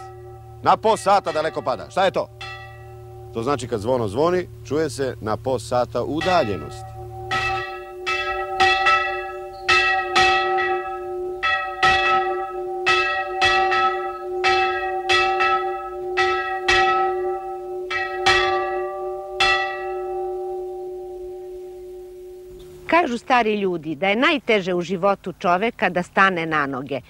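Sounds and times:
steady hum: 0.0 - 12.9
church bells ringing: 0.0 - 22.6.

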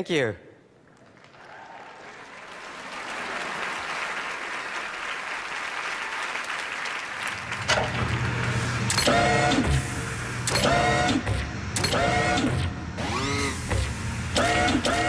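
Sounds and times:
audience applauding: 0.9 - 8.7.

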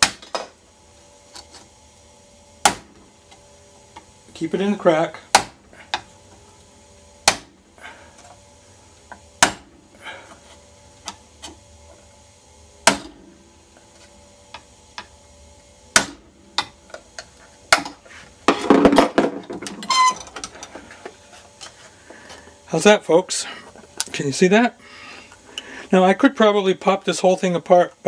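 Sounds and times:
plastic squeak: 19.8 - 20.2.

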